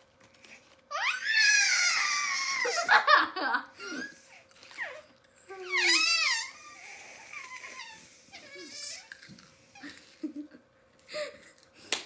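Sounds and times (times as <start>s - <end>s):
girl laughing and giggling: 2.5s - 4.1s, 9.8s - 11.4s.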